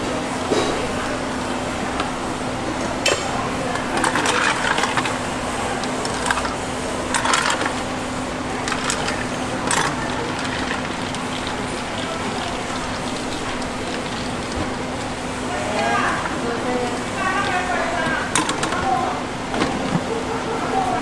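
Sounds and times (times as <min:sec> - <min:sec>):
steady hum: 0:00.0 - 0:21.0
ice cubes rattling: 0:03.9 - 0:07.9, 0:08.5 - 0:19.0.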